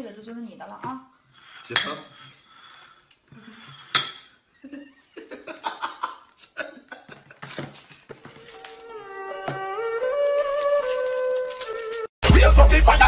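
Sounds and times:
ceramic bowls clinking on table: 1.4s - 4.5s
people laughing: 4.6s - 7.6s.

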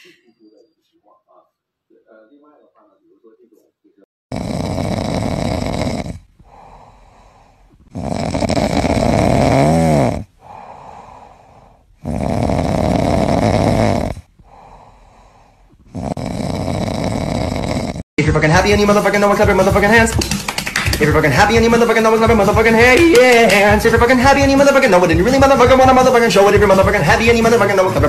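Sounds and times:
cat snoring: 4.3s - 18.1s
soft breaths: 6.1s - 9.2s, 10.2s - 13.2s, 14.0s - 18.0s.

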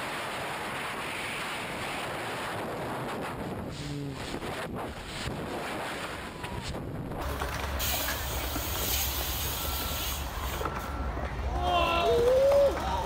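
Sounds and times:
wind buffeting microphone: 0.1s - 7.9s
steady hiss: 7.7s - 10.9s.

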